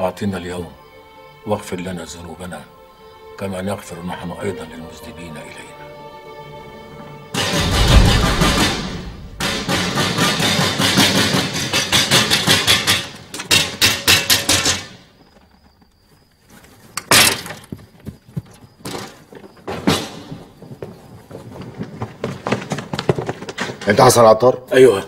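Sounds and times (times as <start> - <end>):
loud thuds: 7.5 - 10.3
heavy thumps and bangs: 7.5 - 10.6.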